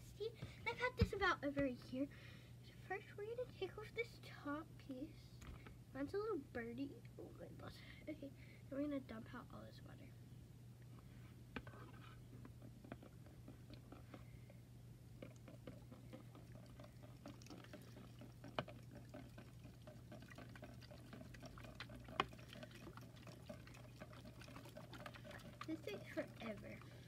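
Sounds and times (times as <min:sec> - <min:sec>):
water dripping into a bucket: 0:15.2 - 0:27.0.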